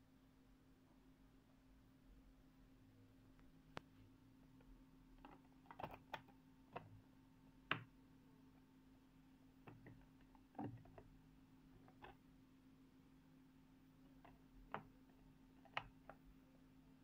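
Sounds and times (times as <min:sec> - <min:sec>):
faint steady hum: 0:00.0 - 0:17.0
fingers tapping acrylic enclosure: 0:05.2 - 0:07.0, 0:09.6 - 0:11.1, 0:11.8 - 0:12.2, 0:14.1 - 0:16.3.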